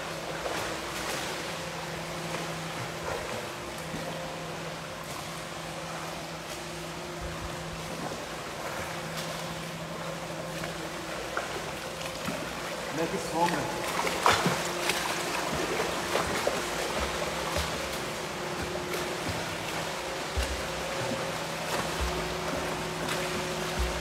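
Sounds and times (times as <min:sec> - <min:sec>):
pump humming: 0:00.0 - 0:24.0
rushing water: 0:00.0 - 0:24.0
swimmer splashing: 0:00.0 - 0:24.0.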